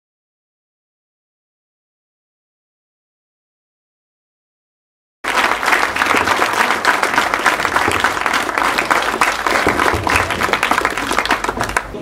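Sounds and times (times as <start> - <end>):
audience applauding: 5.2 - 12.0.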